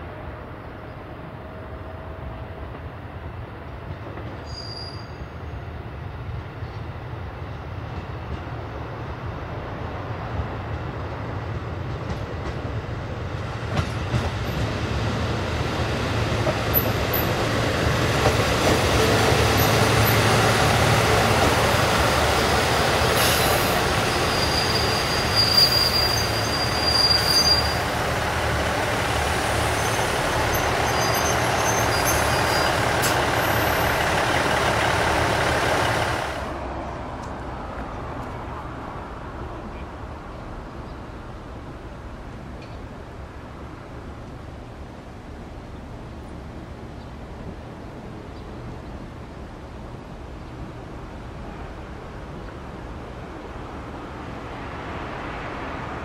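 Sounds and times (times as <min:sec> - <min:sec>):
wheels rumbling on rail: 0:00.0 - 0:56.0
high squeal: 0:04.4 - 0:05.3, 0:23.2 - 0:27.9, 0:29.6 - 0:33.9.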